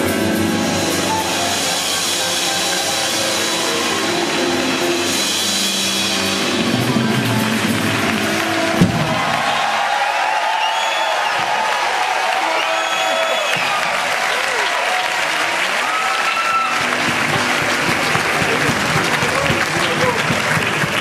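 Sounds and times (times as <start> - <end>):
jazz big band playing: 0.0 - 9.9, 15.6 - 21.0.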